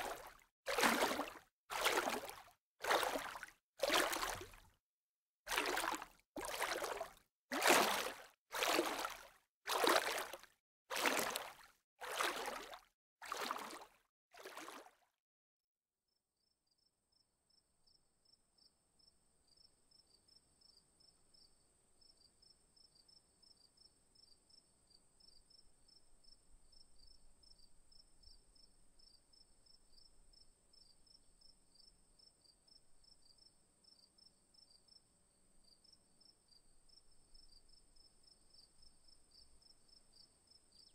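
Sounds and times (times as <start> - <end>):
water swishing: 0.0 - 4.7, 5.5 - 14.9.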